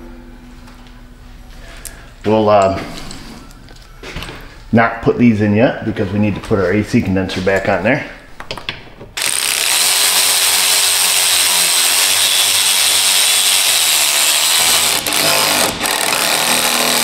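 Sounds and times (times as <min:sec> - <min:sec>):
impact wrench whirring: 0:09.2 - 0:17.0.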